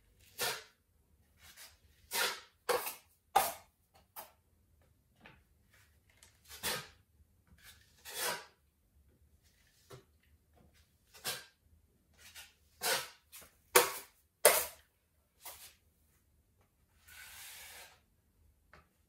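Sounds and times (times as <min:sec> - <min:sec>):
putty knife scraping a wall: 0:00.2 - 0:00.8, 0:01.4 - 0:04.3, 0:06.4 - 0:08.6, 0:11.0 - 0:14.8, 0:17.0 - 0:18.1.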